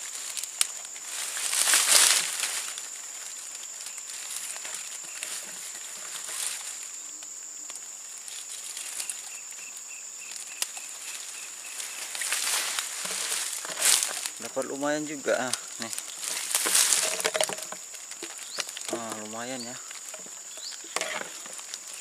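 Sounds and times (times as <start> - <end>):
high-pitched insect drone: 0.0 - 22.0
rustling and crinkling handling: 0.0 - 22.0
faint rapid pulsed chirping: 2.8 - 13.5.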